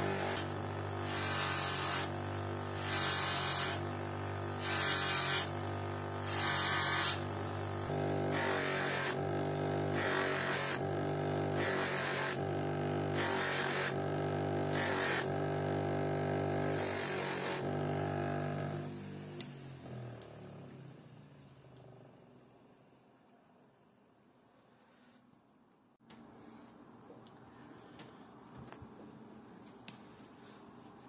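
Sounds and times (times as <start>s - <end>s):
bench grinder motor humming: 0.0s - 20.9s.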